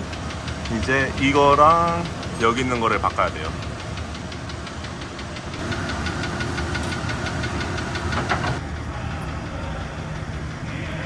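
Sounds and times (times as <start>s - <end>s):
tool clicking rapidly: 0.0s - 8.6s
steady whine: 0.0s - 11.0s.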